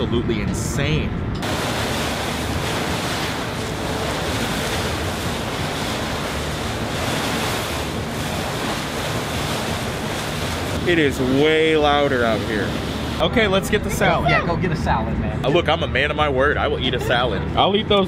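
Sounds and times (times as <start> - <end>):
river water rushing: 1.4 - 13.2
wind buffeting microphone: 1.4 - 13.2.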